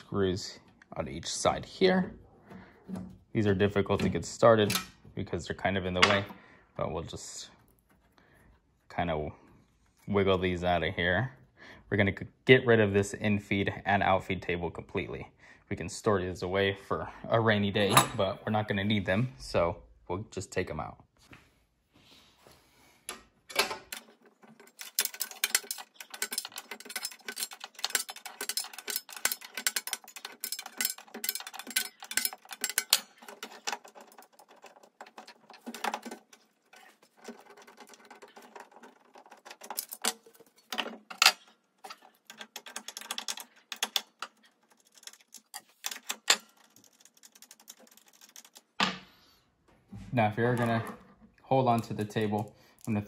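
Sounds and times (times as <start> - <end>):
metallic clicking and rattling: 23.1 - 48.9.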